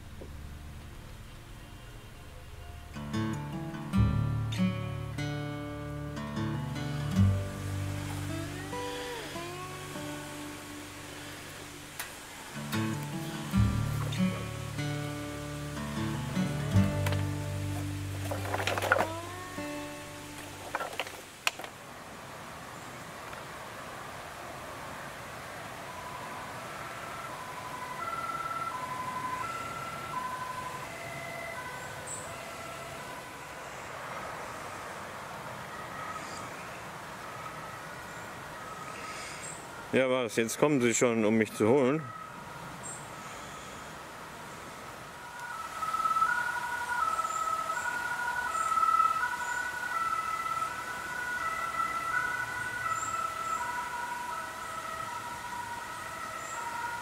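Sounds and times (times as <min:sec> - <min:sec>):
second siren: 0:07.1 - 0:11.8, 0:12.6 - 0:20.8, 0:25.5 - 0:39.4, 0:45.1 - 0:57.0
two-tone siren: 0:07.1 - 0:11.9, 0:12.6 - 0:20.7, 0:25.7 - 0:34.4, 0:35.5 - 0:39.0, 0:45.1 - 0:57.0.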